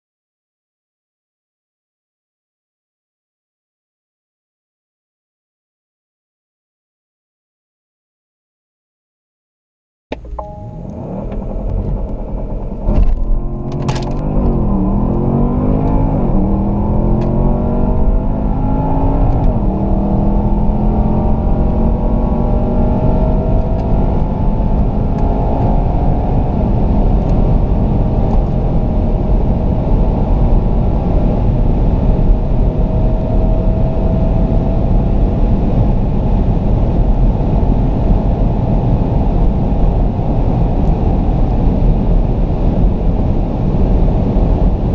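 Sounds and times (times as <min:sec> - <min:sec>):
car engine accelerating: 0:10.1 - 0:44.9
road and wind rumble: 0:10.1 - 0:44.9.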